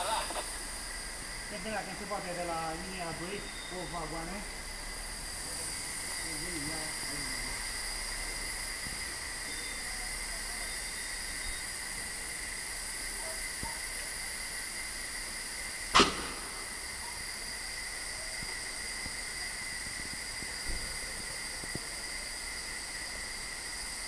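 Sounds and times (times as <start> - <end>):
train air hiss: 0.0 - 24.0
sharp metal clank: 16.0 - 16.7.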